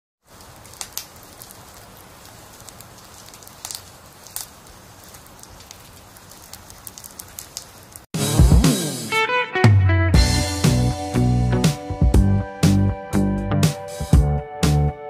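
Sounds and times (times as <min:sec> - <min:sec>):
fire crackling and popping: 0:00.2 - 0:08.2.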